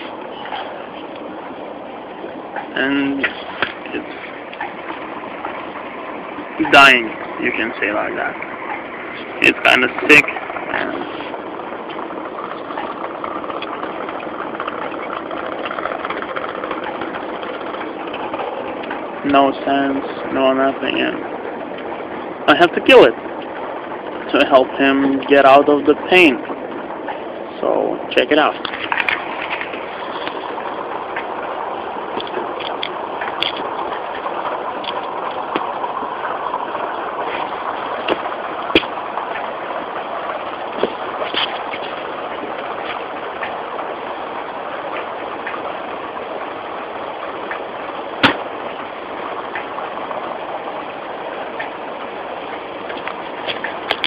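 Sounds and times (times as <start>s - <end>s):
machinery running: 0.0s - 54.0s
steady rushing noise: 0.0s - 54.0s
fast irregular clicking: 11.6s - 19.4s.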